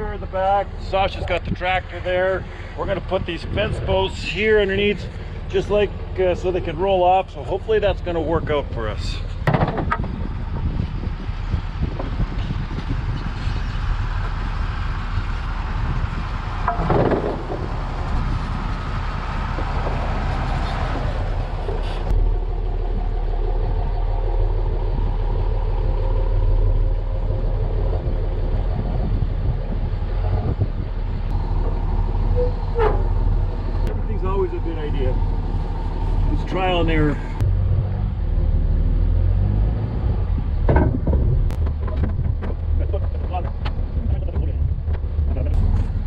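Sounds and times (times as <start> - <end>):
vehicle engine idling: 0.0 - 38.5.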